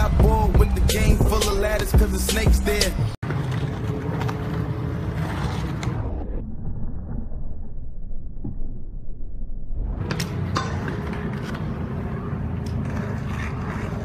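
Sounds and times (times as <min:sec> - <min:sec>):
bike tyres rolling on concrete: 0:03.2 - 0:07.9, 0:09.9 - 0:14.0.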